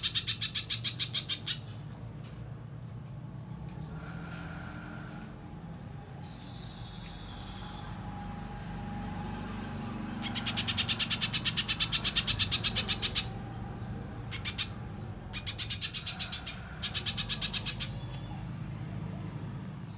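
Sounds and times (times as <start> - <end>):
bird high-pitched chipping: 0.0 - 1.9, 10.1 - 18.6.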